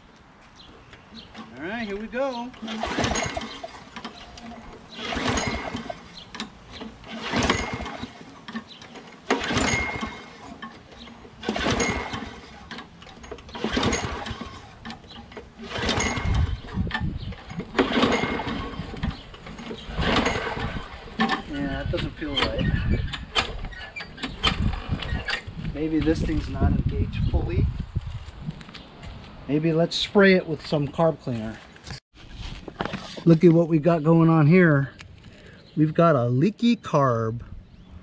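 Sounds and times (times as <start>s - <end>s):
mower engine pull-start whir: 1.1s - 26.2s.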